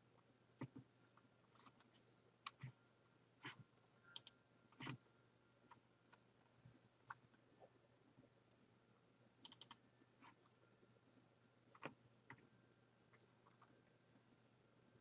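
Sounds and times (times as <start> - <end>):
mouse and keyboard clicks: 1.5 - 2.7, 4.2 - 5.0, 9.4 - 9.8, 13.1 - 13.7.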